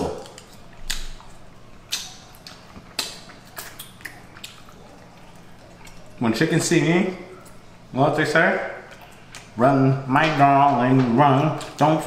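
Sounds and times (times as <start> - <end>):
mouth smacks: 0.2 - 6.2.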